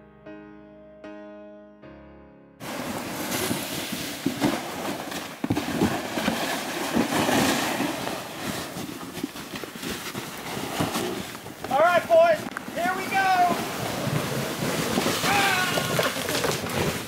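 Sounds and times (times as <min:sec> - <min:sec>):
piano note: 0:00.0 - 0:02.6
footsteps crunching in snow: 0:02.6 - 0:17.0
rushing noise on microphone: 0:02.6 - 0:17.0.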